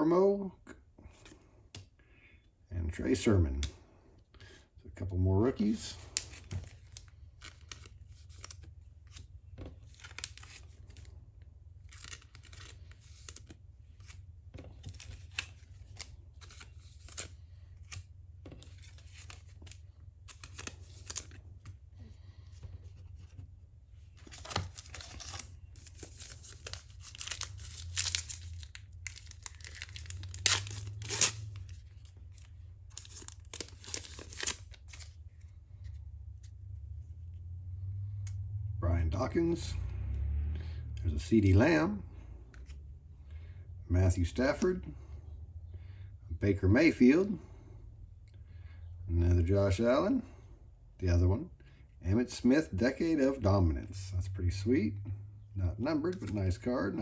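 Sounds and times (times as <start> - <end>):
cards and plastic sleeves rustling: 5.4 - 36.8, 55.7 - 57.0.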